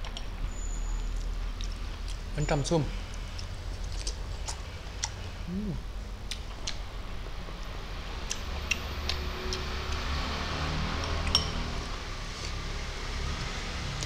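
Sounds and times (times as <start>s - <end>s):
person eating greens: 3.1s - 6.8s.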